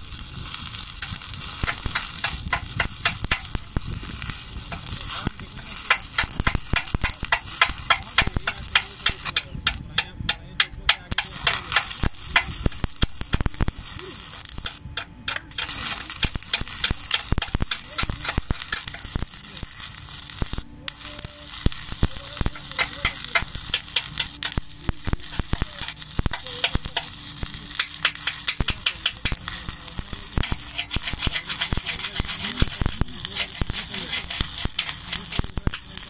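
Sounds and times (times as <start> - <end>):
arc welding crackling: 0.0 - 36.0.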